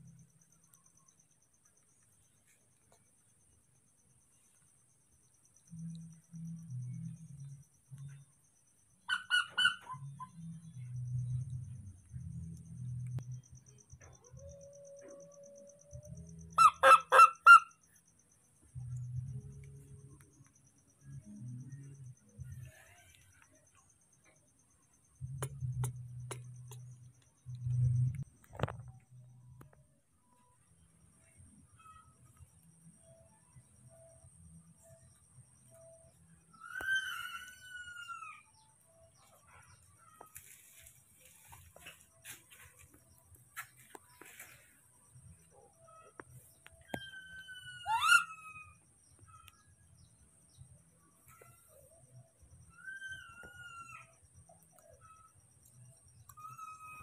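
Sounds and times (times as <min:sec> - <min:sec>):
baby monkey coo calls: 0:09.1 - 0:10.3, 0:36.5 - 0:38.6, 0:46.8 - 0:49.7
sharp clicks and taps: 0:25.2 - 0:29.0
monkey rising squeal: 0:47.1 - 0:48.8.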